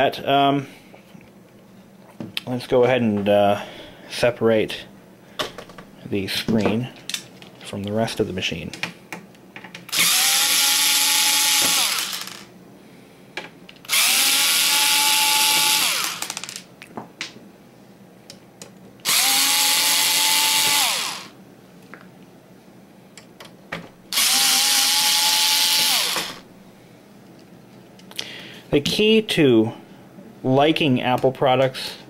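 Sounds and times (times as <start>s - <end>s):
cordless drill motor whine: 9.9s - 12.5s, 13.9s - 16.4s, 19.0s - 21.4s, 24.1s - 26.4s.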